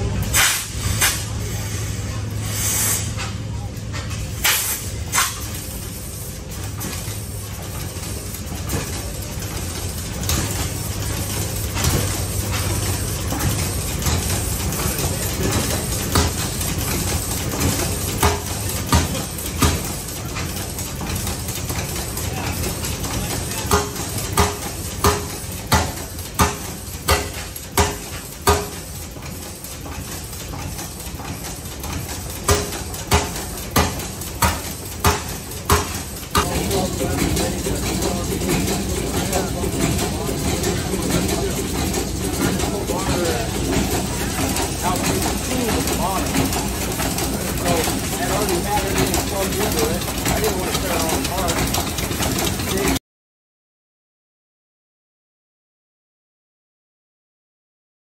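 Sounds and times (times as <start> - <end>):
gas engine firing pops: 4.4 - 5.5.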